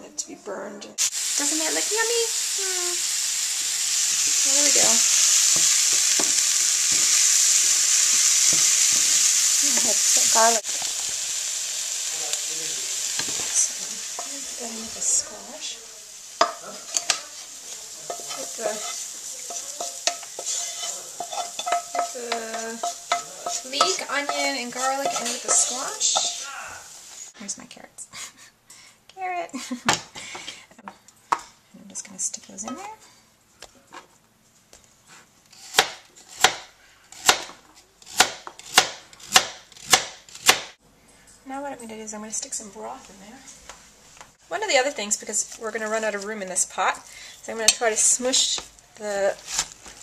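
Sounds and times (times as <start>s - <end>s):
vegetables sizzling in butter: 1.0s - 27.6s, 44.4s - 50.0s
utensil scraping a pot: 16.4s - 26.5s
knife chopping on cutting board: 35.7s - 40.7s.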